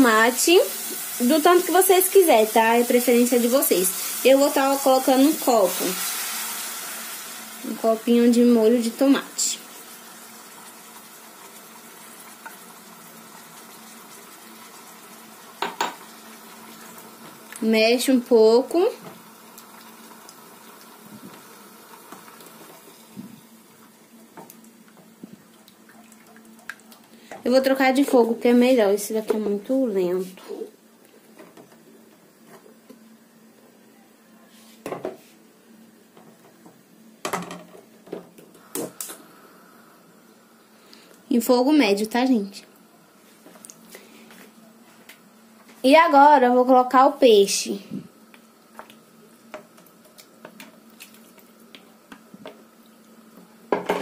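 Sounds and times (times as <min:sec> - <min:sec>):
sauce sizzling in a pan: 0:00.0 - 0:25.2.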